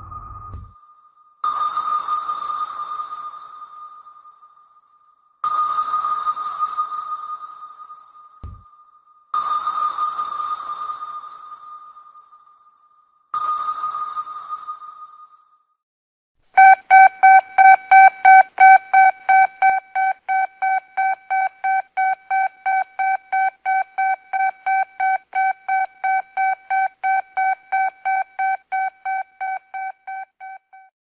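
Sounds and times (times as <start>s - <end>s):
electronic alarm beeping: 16.6s - 30.9s.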